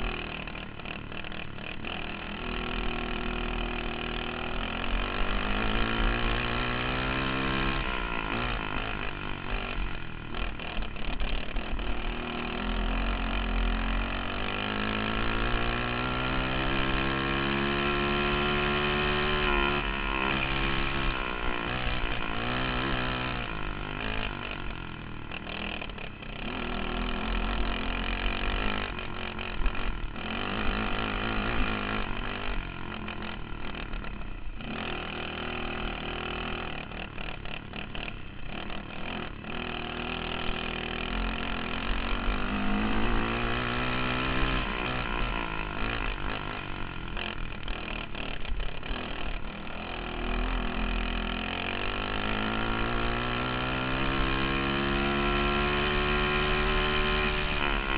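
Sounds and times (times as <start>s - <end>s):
kart engine revving: 0.0s - 57.9s.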